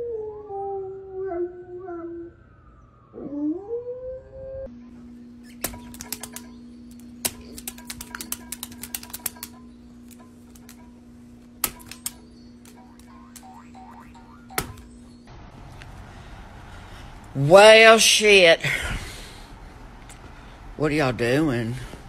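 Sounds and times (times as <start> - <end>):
steady low hum: 4.6 - 22.0
dog claws tapping on glass: 5.6 - 10.9, 11.6 - 13.6.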